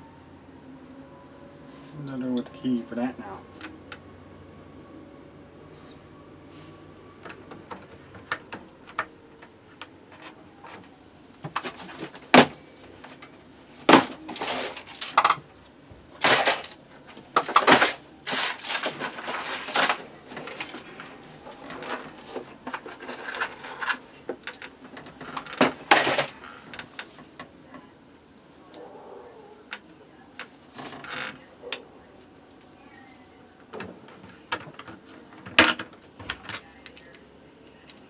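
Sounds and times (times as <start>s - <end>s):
plastic trays clicking and rattling: 13.9s - 15.5s, 16.2s - 27.3s.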